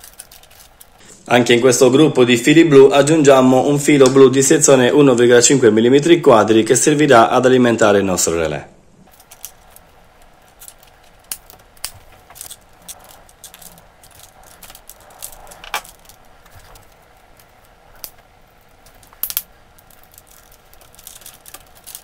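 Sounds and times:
wires clicking and rustling: 0:00.0 - 0:01.3, 0:09.0 - 0:22.0.

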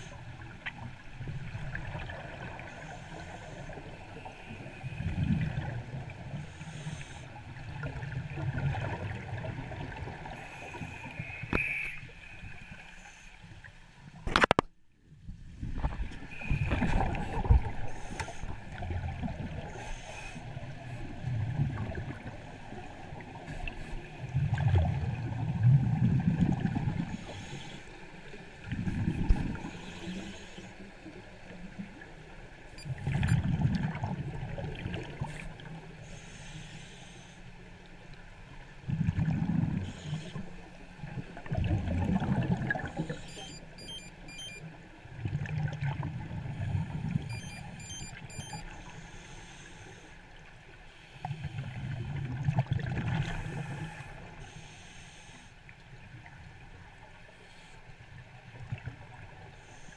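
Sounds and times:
diver's bubbles underwater: 0:41.3 - 0:43.2.

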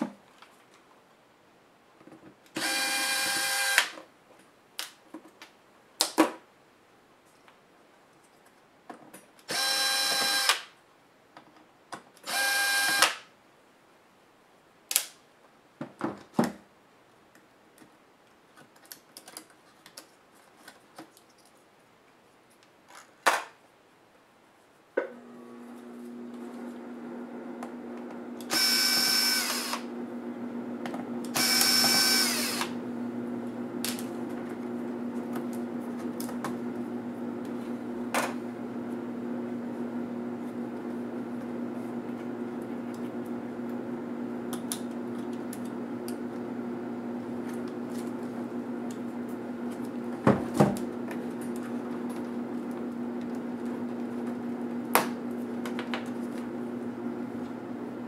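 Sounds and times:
electric screwdriver whirring: 0:02.6 - 0:04.0, 0:09.5 - 0:10.7, 0:12.2 - 0:13.2, 0:28.4 - 0:29.9, 0:31.2 - 0:32.8.

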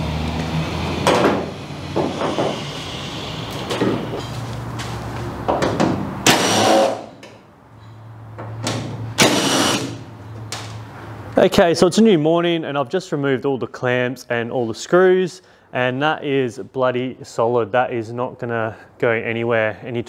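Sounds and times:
cordless drill driving screws: 0:06.3 - 0:07.0, 0:09.2 - 0:10.0.

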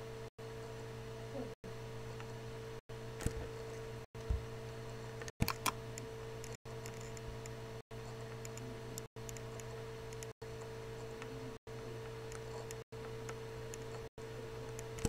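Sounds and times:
electrical hum: 0:00.0 - 0:15.0
computer mouse clicks: 0:05.4 - 0:11.3, 0:12.3 - 0:14.1, 0:14.7 - 0:15.0.

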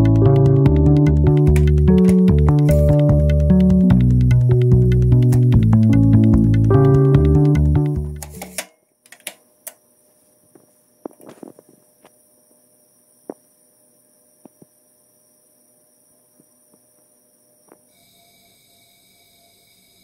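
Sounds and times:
faint electrical hum: 0:08.2 - 0:20.0.

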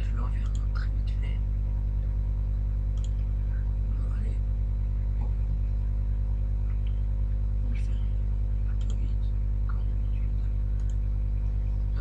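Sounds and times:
electrical mains hum: 0:00.0 - 0:12.0
computer mouse clicks: 0:00.4 - 0:00.8, 0:02.9 - 0:03.3, 0:08.7 - 0:09.1, 0:10.7 - 0:11.0.

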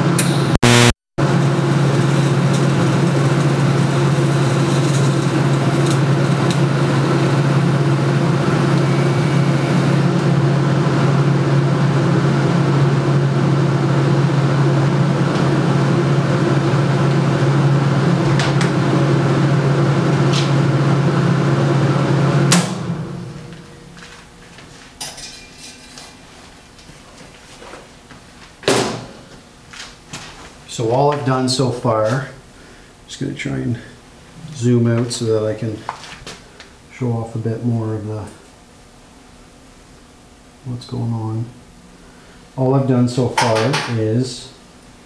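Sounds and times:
welding arc buzzing: 0:00.0 - 0:26.8.

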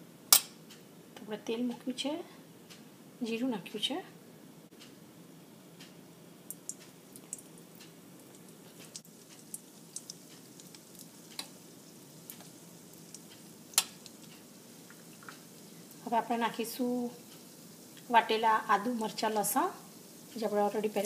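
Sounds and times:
crackling pops: 0:06.5 - 0:11.6, 0:12.2 - 0:16.0
spices sizzling in hot oil: 0:06.5 - 0:21.0.

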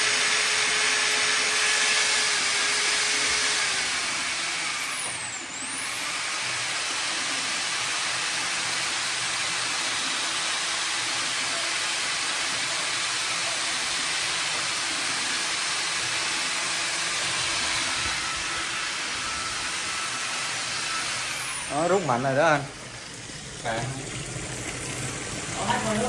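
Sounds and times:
water running into sink drain: 0:22.8 - 0:26.0.

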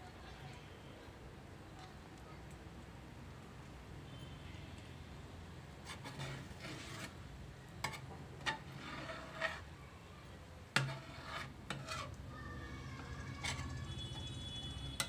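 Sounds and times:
metal spatula stirring and scraping: 0:05.7 - 0:09.8, 0:10.7 - 0:15.0.

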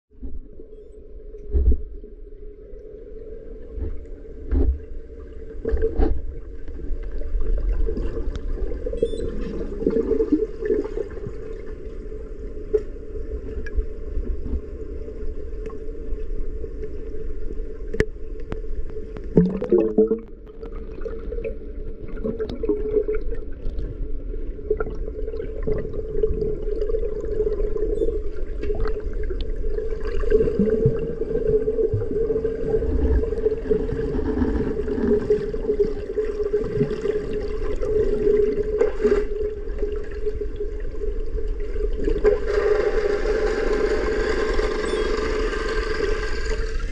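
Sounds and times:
underwater hum: 0:00.1 - 0:46.9
water gurgling: 0:04.5 - 0:12.2, 0:19.0 - 0:46.9
water churning: 0:19.3 - 0:46.9.

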